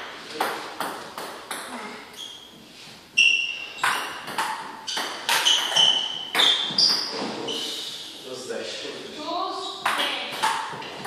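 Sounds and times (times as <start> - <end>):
table tennis ball hits: 0.0 - 1.8, 3.8 - 7.3, 9.8 - 11.0.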